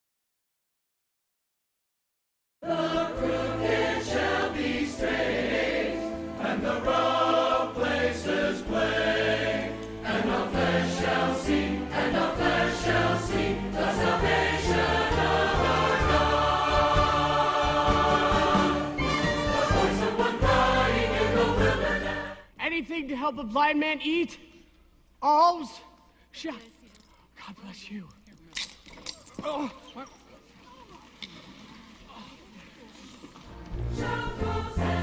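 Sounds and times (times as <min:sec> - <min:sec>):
choir singing with instruments: 0:02.6 - 0:22.5, 0:33.5 - 0:35.0.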